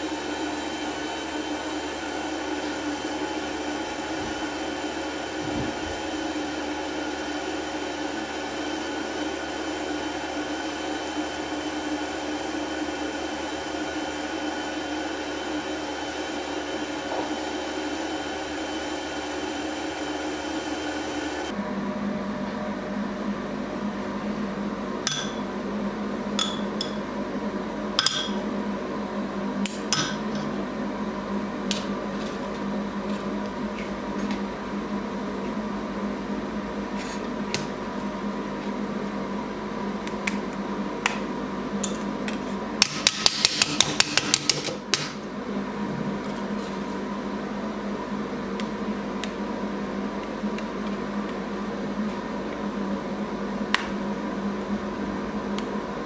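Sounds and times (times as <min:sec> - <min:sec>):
laser machine humming: 0:00.0 - 0:21.6.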